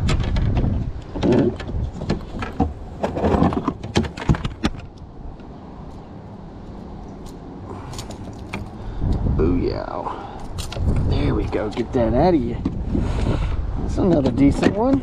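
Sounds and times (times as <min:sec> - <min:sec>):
handling clicks and knocks: 0:00.0 - 0:06.1, 0:13.9 - 0:15.0
wind rumble on microphone: 0:00.0 - 0:15.0.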